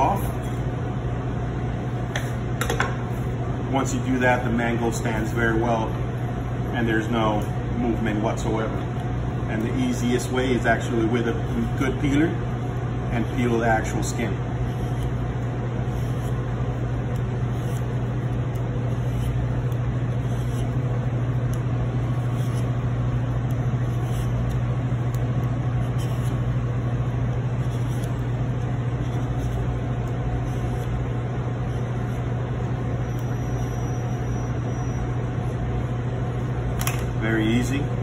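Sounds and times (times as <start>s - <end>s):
kitchen machinery humming: 0.0s - 38.0s
vegetable peeler scraping: 13.4s - 25.2s, 25.8s - 26.6s, 27.3s - 31.0s.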